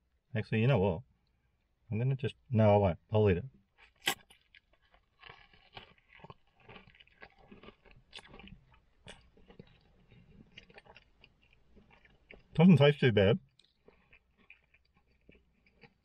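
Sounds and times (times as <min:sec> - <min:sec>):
bite into pastry crust: 0:03.8 - 0:12.7, 0:13.4 - 0:16.0
chewing close to microphone: 0:03.8 - 0:16.0.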